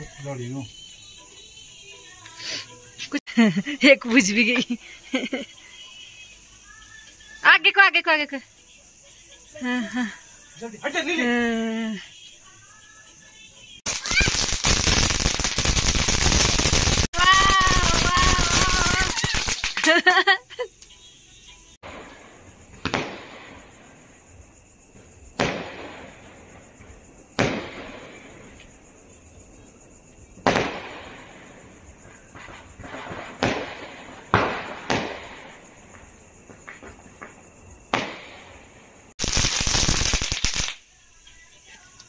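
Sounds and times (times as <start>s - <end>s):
firework crackling hiss: 0.0s - 8.0s, 13.7s - 20.8s, 21.7s - 42.0s
firecracker bangs: 13.9s - 20.0s, 21.8s - 24.2s, 25.2s - 28.6s, 30.4s - 40.8s.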